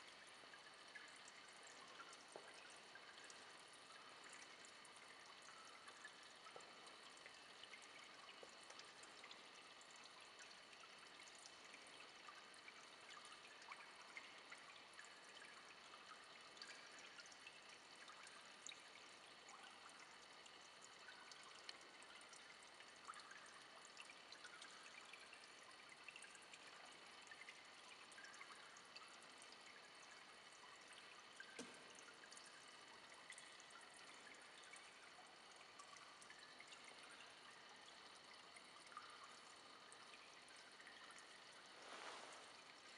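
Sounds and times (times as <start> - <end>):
trickle of running water: 0.0 - 42.9.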